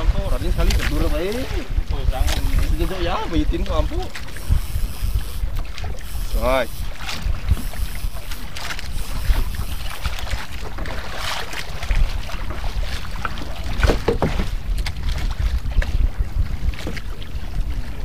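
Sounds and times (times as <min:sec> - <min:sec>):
water sloshing around boat: 0:00.0 - 0:18.0
wind rumble on microphone: 0:00.0 - 0:18.0
knocks from fishing rod: 0:13.2 - 0:15.0.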